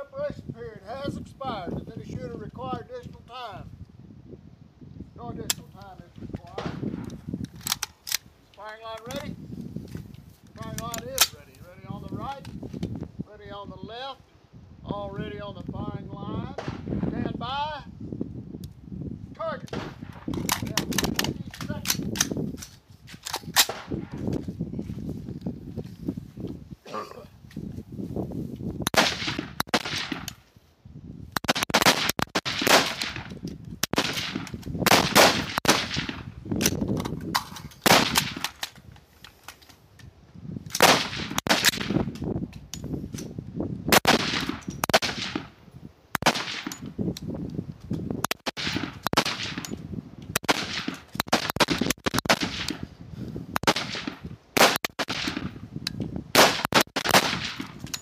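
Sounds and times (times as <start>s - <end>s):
rifles firing rapidly: 28.9s - 30.3s, 31.4s - 33.2s, 33.9s - 36.2s, 40.8s - 42.0s, 43.9s - 45.5s, 48.3s - 49.7s, 50.4s - 52.8s, 53.6s - 55.5s, 56.4s - 57.7s.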